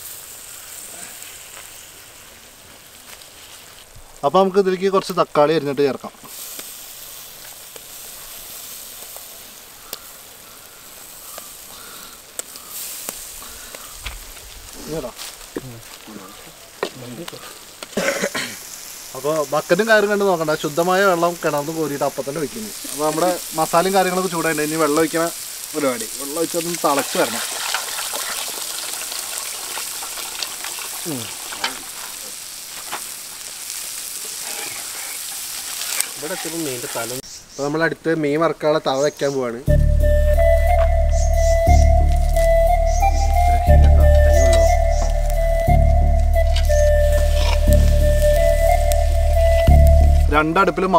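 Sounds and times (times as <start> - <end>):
food sizzling in hot oil: 0.0 - 37.7, 39.0 - 50.9
water being poured: 26.4 - 32.2.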